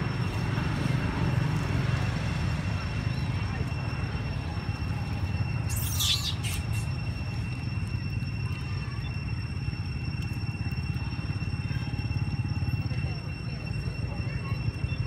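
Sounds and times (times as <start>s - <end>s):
continuous high-pitched tone: 0.0s - 15.0s
steady low rumble: 0.0s - 15.0s
brief high squeak: 5.7s - 7.0s.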